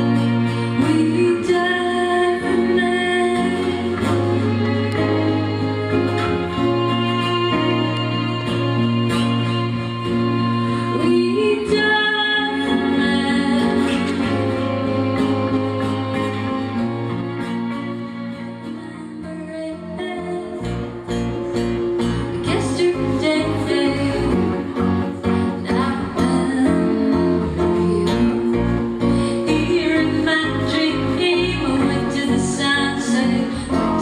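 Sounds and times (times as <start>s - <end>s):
woman singing: 0.0s - 15.9s, 18.3s - 34.0s
strummed acoustic guitar: 0.0s - 34.0s
violin: 0.0s - 34.0s.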